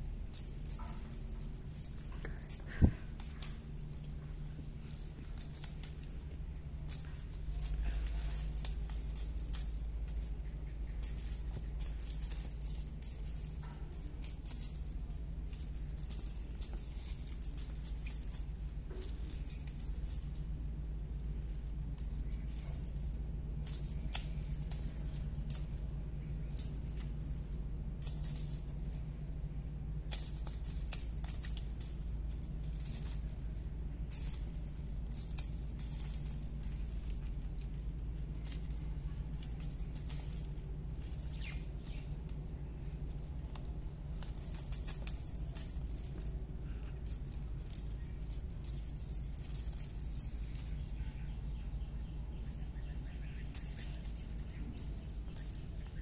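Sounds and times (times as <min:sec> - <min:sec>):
cat toy rattling and jingling: 0:00.0 - 0:56.0
steady low hum: 0:00.0 - 0:56.0.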